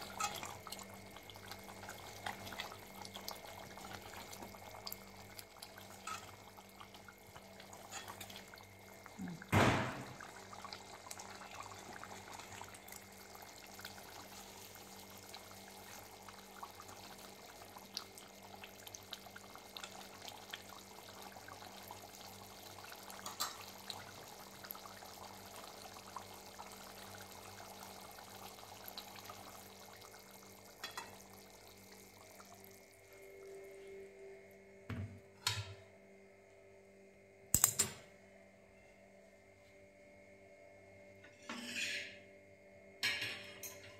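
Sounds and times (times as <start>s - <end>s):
curry bubbling and simmering: 0.0s - 33.7s
loud knock: 9.5s - 10.2s.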